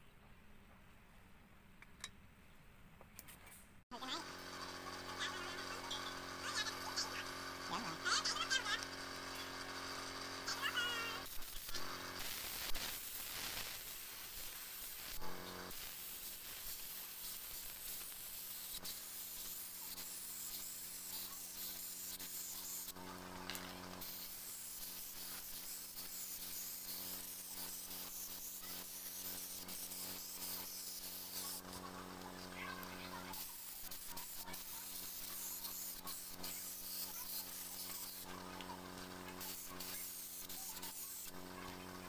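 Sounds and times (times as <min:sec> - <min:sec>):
paint spray gun hissing: 0:04.0 - 0:42.0.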